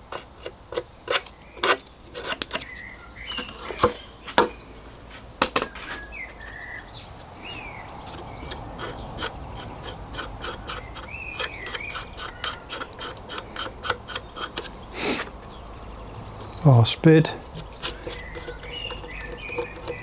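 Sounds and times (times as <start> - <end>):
rubbing strokes on wood: 8.0 - 15.4.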